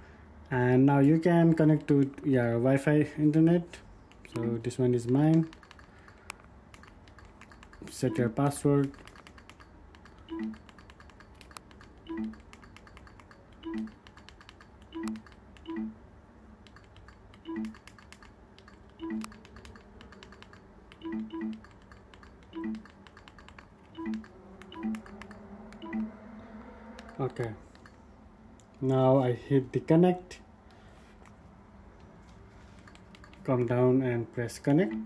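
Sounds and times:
remote buttons pressed: 4.1 - 16.0, 16.6 - 26.1, 32.8 - 33.5.

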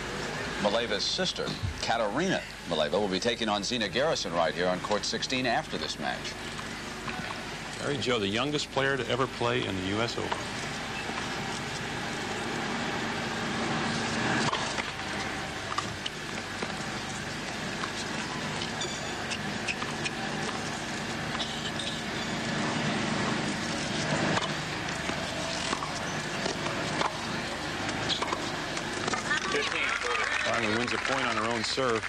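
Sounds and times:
constant hum: 0.0 - 32.0
crowd murmuring: 14.3 - 31.6.

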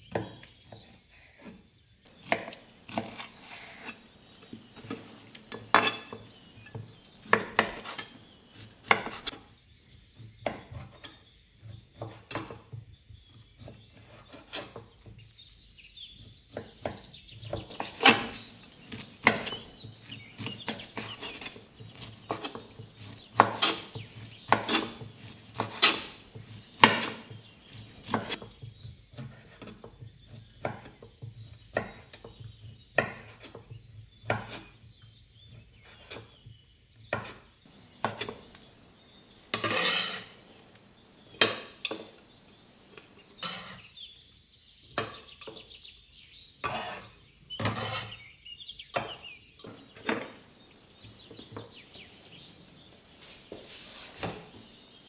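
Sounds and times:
knife chopping on wooden board: 2.1 - 9.4, 10.2 - 11.0, 11.6 - 12.7, 16.2 - 34.7, 37.1 - 43.8.

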